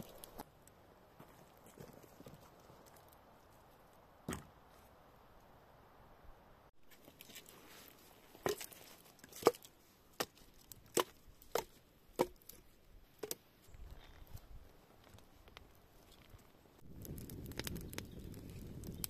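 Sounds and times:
hatchet chopping wood: 9.3s - 12.6s.

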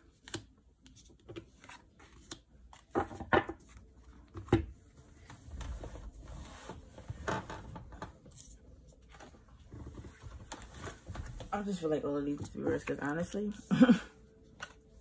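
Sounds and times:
cards rustling: 0.2s - 3.0s.

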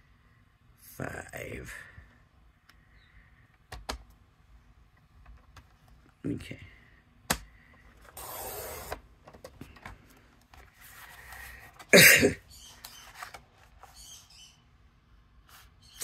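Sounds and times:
paper rustling: 8.1s - 14.2s
person coughing: 11.8s - 12.5s.

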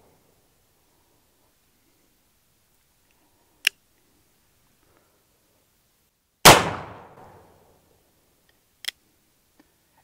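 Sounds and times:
revolver gunshot: 6.4s - 7.5s.

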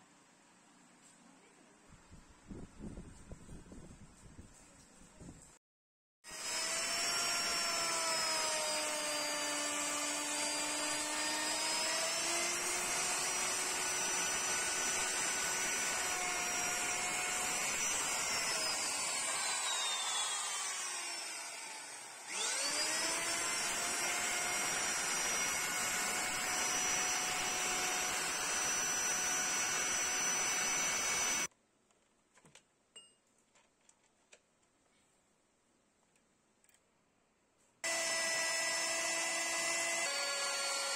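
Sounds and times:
electric router whining: 6.3s - 31.5s, 37.8s - 40.9s.

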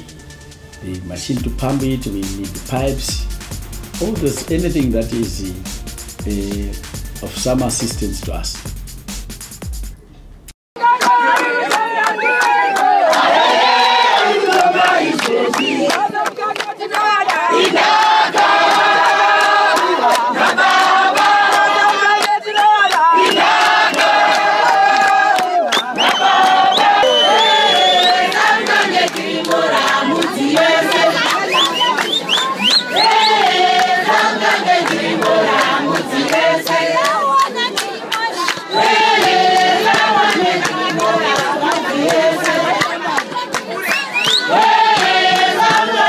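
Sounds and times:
hand-clapping: 10.8s - 13.3s, 14.4s - 46.0s
crowd singing in chorus: 11.2s - 46.0s.

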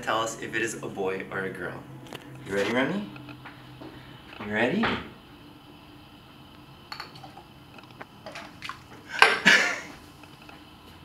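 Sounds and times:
glassware clinking: 6.9s - 7.4s
liquid pouring: 8.2s - 9.4s.

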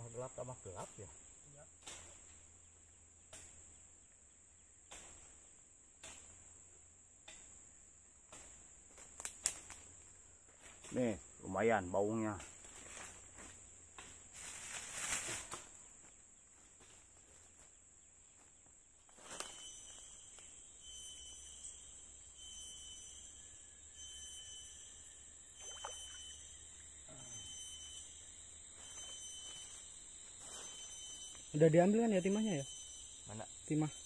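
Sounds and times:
short insect chirps: 0.0s - 16.2s, 19.0s - 34.0s
crickets buzzing: 0.0s - 16.9s, 17.5s - 34.0s.

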